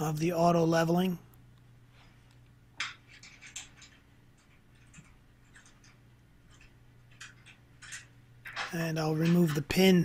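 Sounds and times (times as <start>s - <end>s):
camera crane clicks and ticks: 2.3s - 9.6s.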